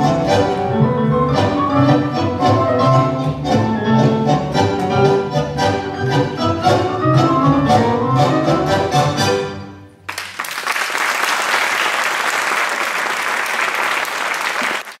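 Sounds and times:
tango music on strings: 0.0s - 9.9s
audience applauding: 10.1s - 15.0s.

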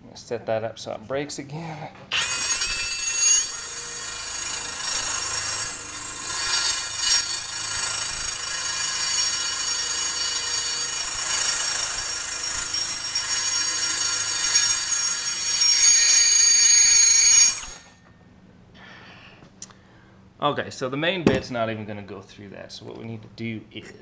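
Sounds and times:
hole saw screeching on metal: 2.1s - 18.0s.

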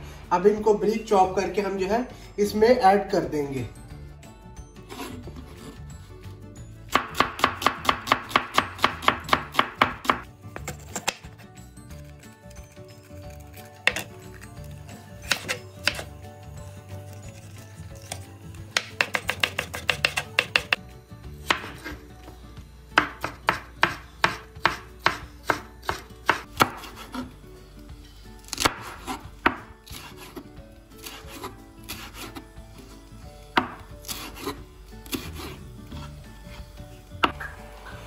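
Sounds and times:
knife chopping on wooden board: 6.9s - 11.3s, 13.8s - 14.1s, 15.2s - 16.1s, 18.7s - 20.8s, 21.4s - 22.0s, 23.0s - 27.3s, 28.5s - 30.4s, 31.0s - 32.4s, 33.5s - 36.1s.

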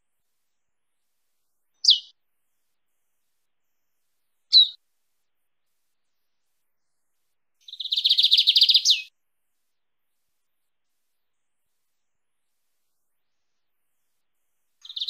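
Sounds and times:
bird singing: 1.8s - 2.1s, 4.5s - 4.8s, 7.6s - 9.1s.

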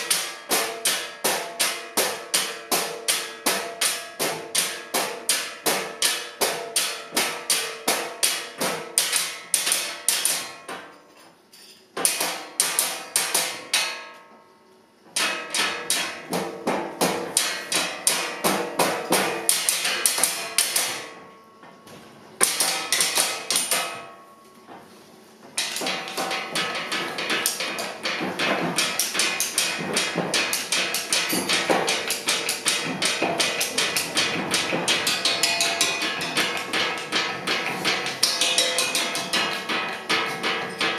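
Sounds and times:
sticks drumming on tabletop: 25.6s - 40.9s.

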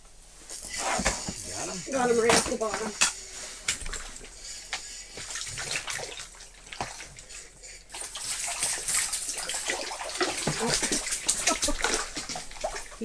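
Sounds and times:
fish flopping and splashing: 3.1s - 13.0s.

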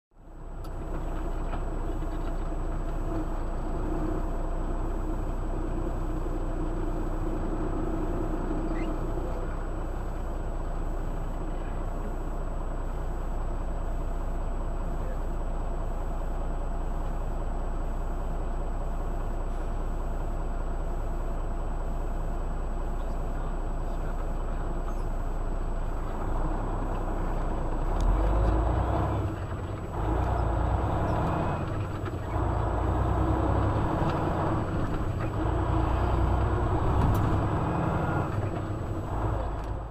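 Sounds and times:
truck engine idling: 0.1s - 39.9s.

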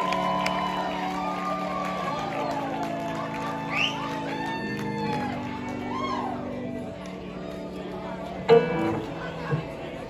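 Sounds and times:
rock band playing a chord: 8.4s - 9.7s.

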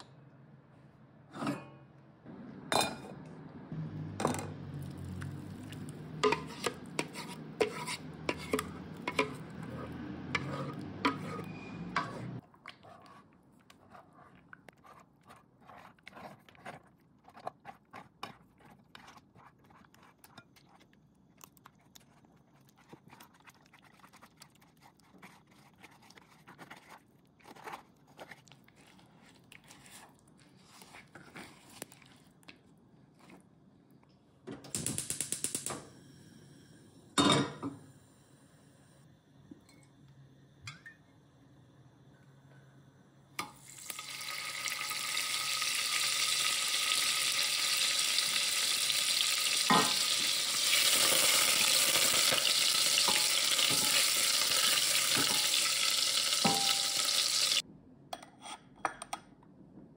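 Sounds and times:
spoon scraping sauce through sieve: 5.2s - 32.3s.

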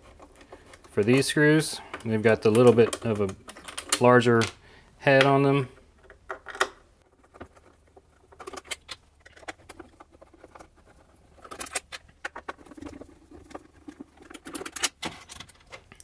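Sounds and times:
small screws clinking: 14.2s - 16.0s.

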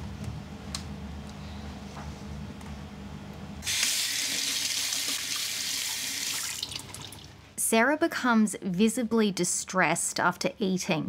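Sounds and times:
tap water running into sink: 3.7s - 7.3s.

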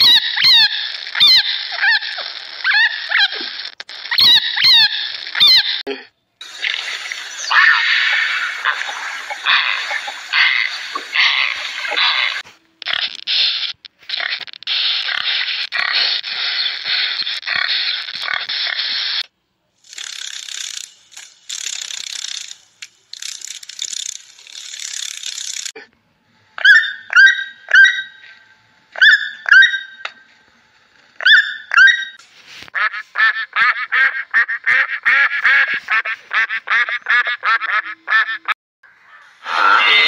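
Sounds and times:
fast chattering calls: 6.5s - 19.2s, 19.8s - 25.7s
piglets squealing: 7.4s - 12.4s, 26.6s - 28.2s, 29.0s - 30.1s, 39.2s - 40.0s.

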